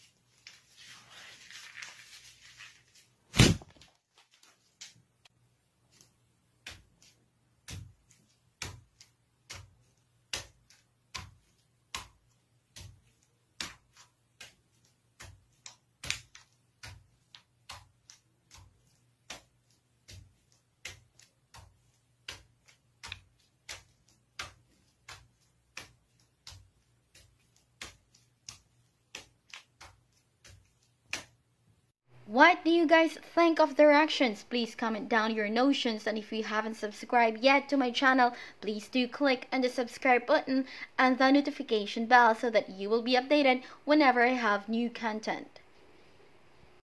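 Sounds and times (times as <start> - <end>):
bare feet stamping on paper: 5.8 - 31.5.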